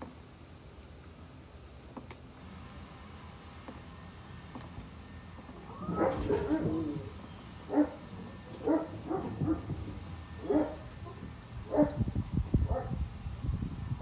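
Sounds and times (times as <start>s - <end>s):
dog barking: 5.9s - 6.9s, 7.7s - 8.0s, 8.6s - 9.8s, 10.4s - 12.0s, 12.7s - 13.0s.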